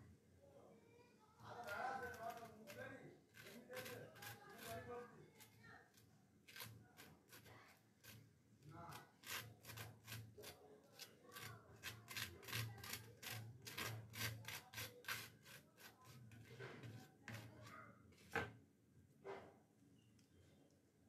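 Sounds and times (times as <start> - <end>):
knife scraping toast: 1.6 - 4.9, 6.5 - 8.2, 8.9 - 17.6.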